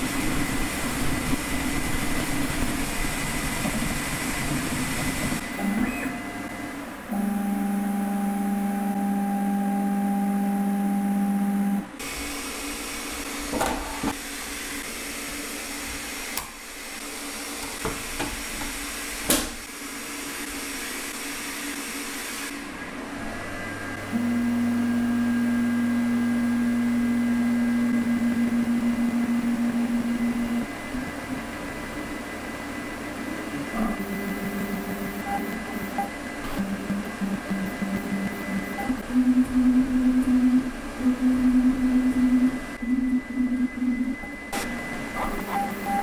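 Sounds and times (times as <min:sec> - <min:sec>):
fans: 0:00.0 - 0:46.0
stepper motors whining: 0:23.2 - 0:31.4, 0:33.4 - 0:46.0.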